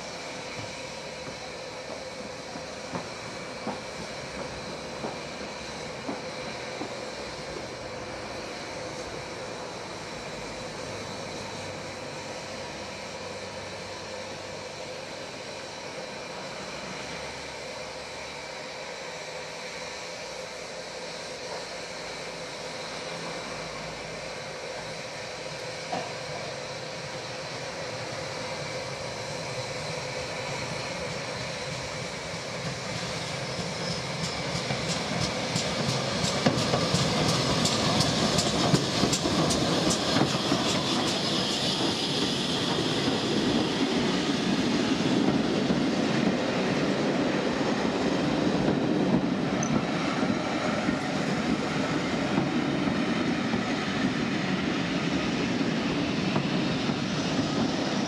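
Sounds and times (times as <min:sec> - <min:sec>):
steam train passing: 0:00.0 - 0:58.0
train wheels clattering: 0:00.6 - 0:07.7, 0:32.6 - 0:46.6.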